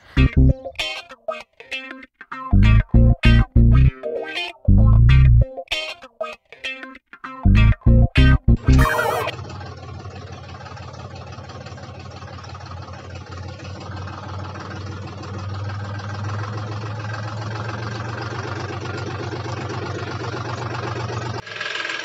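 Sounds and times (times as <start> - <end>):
tractor diesel engine running: 8.6 - 22.0.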